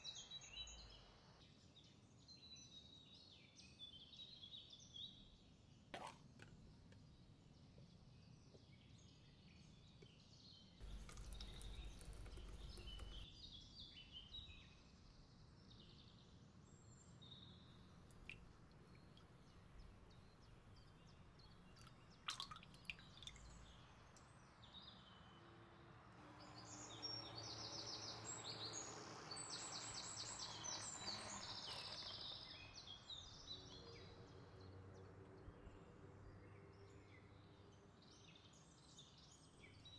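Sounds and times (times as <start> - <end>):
birds chirping and trilling: 10.8 - 13.2
low background hum: 10.8 - 13.2.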